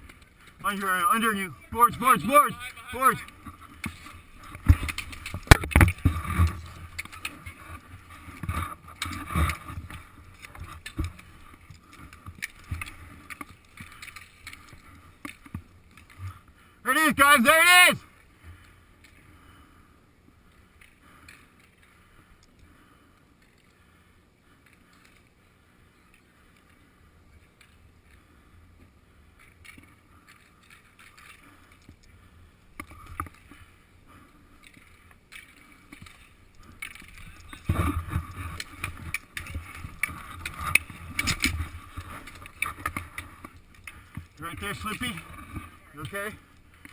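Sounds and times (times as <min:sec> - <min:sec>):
skate wheels rolling on concrete: 0:00.0 - 0:46.9
hockey sticks clacking: 0:01.8 - 0:16.3, 0:34.6 - 0:46.9.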